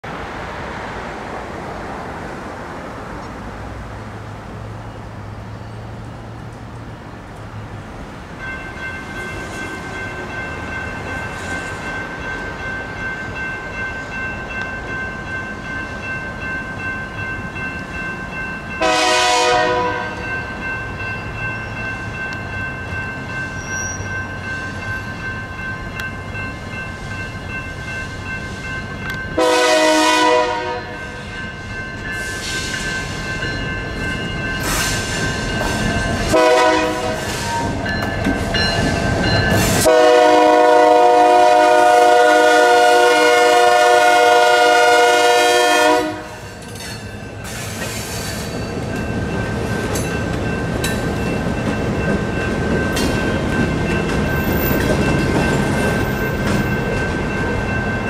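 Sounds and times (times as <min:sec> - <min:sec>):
crossing bells ringing: 0:08.0 - 0:58.0
locomotive air horn blast: 0:18.8 - 0:20.2, 0:29.4 - 0:31.0, 0:36.3 - 0:37.8, 0:39.8 - 0:46.4.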